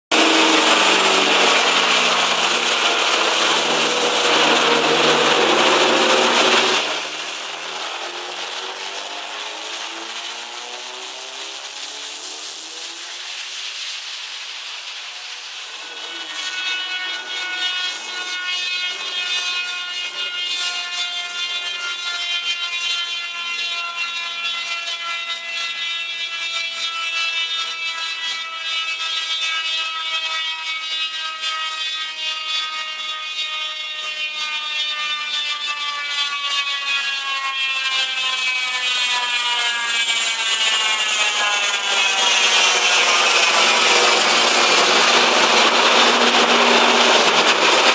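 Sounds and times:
car engine whining on dyno: 0:00.1 - 0:13.6, 0:39.2 - 0:47.9.

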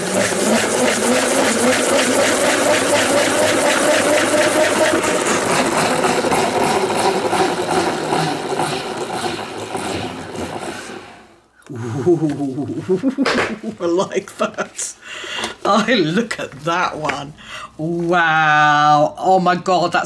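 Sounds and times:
salad spinner whirring and clicking: 0:00.0 - 0:11.4.

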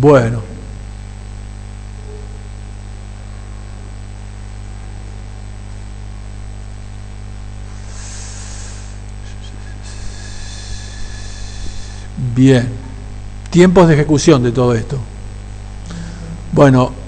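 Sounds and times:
electrical mains hum: 0:00.0 - 0:17.0
short hiss: 0:07.7 - 0:12.1.

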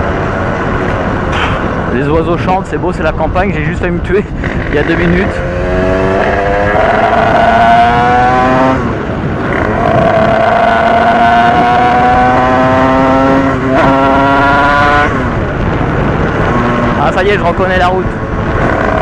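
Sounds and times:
wind rumbling on microphone: 0:00.0 - 0:19.0
dirt bike engine revving: 0:04.4 - 0:15.1.

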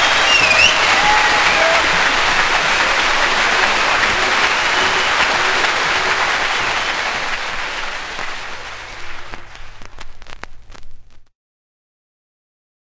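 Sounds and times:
audience applauding: 0:00.0 - 0:10.2.

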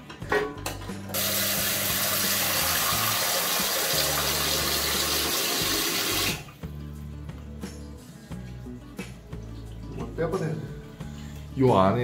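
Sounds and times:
faucet water rushing into basin: 0:01.2 - 0:06.6.

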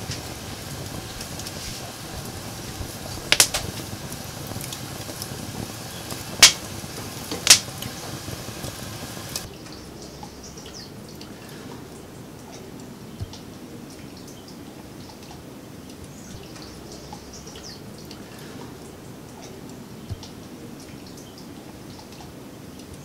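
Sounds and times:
pine cones popping: 0:00.0 - 0:09.5
fire crackling in a stove: 0:00.0 - 0:14.4.

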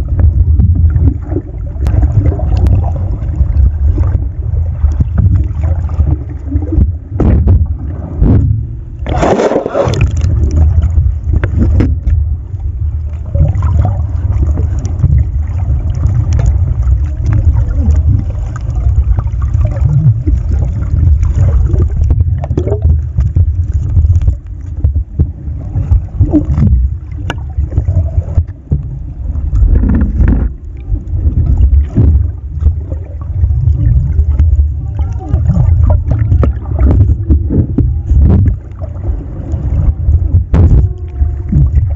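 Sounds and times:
rush of water: 0:00.0 - 0:41.9
underwater low rumble: 0:00.0 - 0:41.9
water gurgling and scraping: 0:00.0 - 0:41.9.

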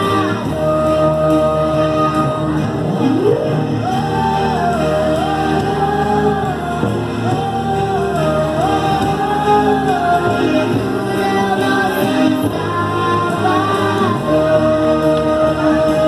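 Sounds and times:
instrumental backing: 0:00.0 - 0:16.0
person singing: 0:00.0 - 0:16.0.

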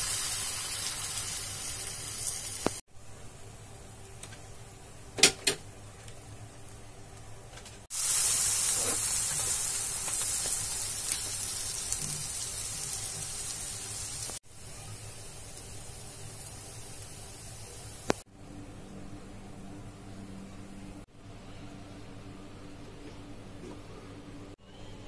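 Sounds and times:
egg batter sizzling in a pan: 0:00.0 - 0:02.8, 0:07.9 - 0:18.2.

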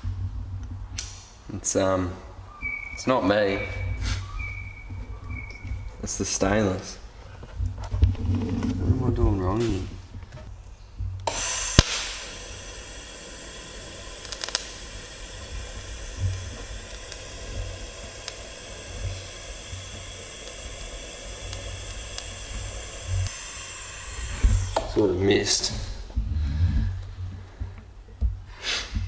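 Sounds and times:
welding arc hissing: 0:00.9 - 0:07.2, 0:11.2 - 0:27.8
welder click: 0:01.0 - 0:01.2, 0:11.2 - 0:25.1.

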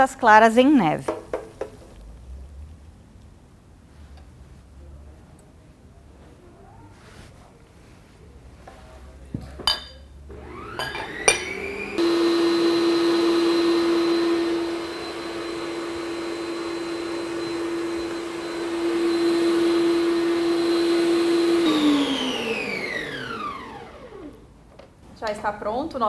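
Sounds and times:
stand mixer motor whining: 0:10.3 - 0:24.5.

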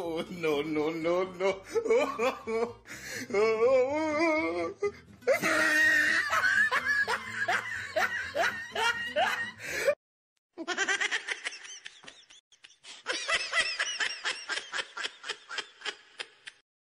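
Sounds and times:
laughter in bursts: 0:05.3 - 0:10.0, 0:10.6 - 0:16.6.

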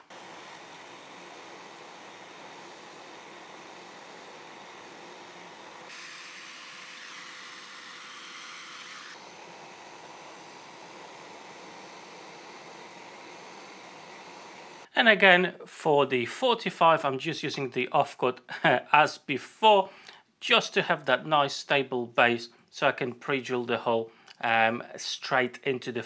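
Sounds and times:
dust extractor hissing: 0:00.0 - 0:15.0.

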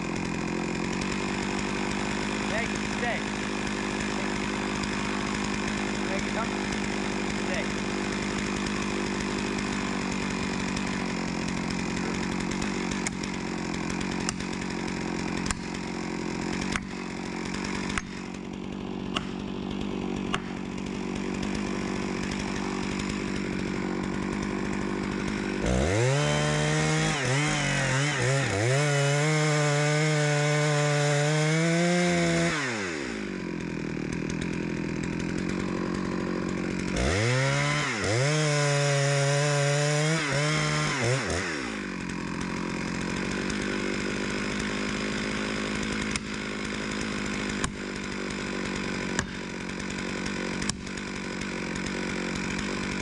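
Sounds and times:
chainsaw cutting wood: 0:00.0 - 0:53.0.

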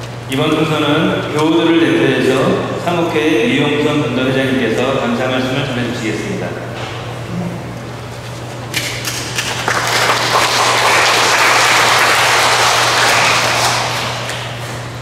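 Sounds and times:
steady low hum: 0:00.0 - 0:15.0
congregation applauding: 0:09.0 - 0:14.9.

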